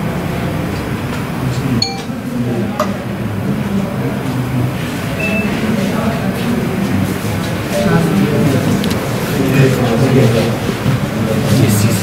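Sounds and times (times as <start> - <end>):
men's voices murmuring: 3.5 - 12.0.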